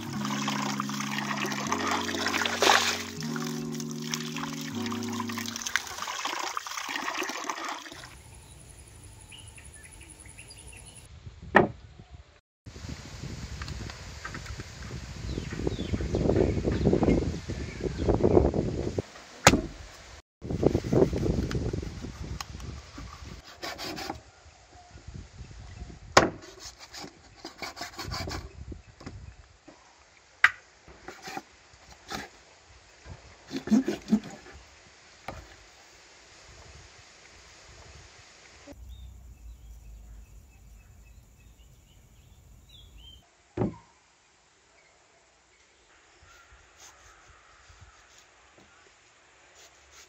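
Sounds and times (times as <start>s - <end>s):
water splashing and trickling: 0.0s - 8.4s
faint bird chirps: 38.7s - 44.1s.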